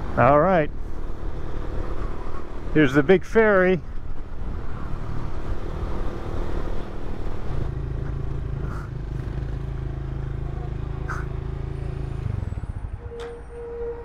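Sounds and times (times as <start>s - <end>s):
motorcycle engine running: 7.7s - 12.9s.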